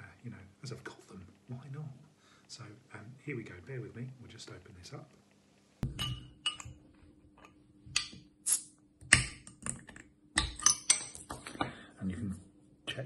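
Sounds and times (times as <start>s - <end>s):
glass bottle clinking: 5.8s - 6.8s.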